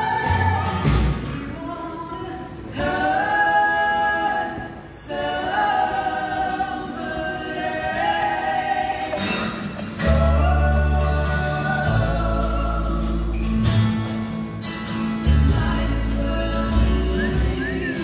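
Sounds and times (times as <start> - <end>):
bass and drums: 0.0 - 1.5, 9.8 - 18.0
voices singing close harmony: 0.0 - 13.6, 15.3 - 18.0.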